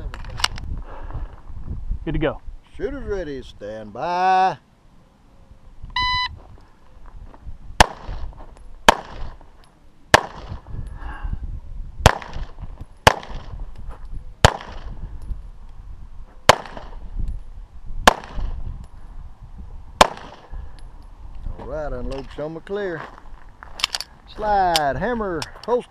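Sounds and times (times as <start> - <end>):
shot timer beep: 6.0 - 6.3
pistol shots with echo: 7.8 - 8.2, 8.9 - 9.4, 10.1 - 10.6, 12.0 - 13.5, 14.4 - 14.9, 16.5 - 17.0, 18.0 - 18.5, 20.0 - 20.5.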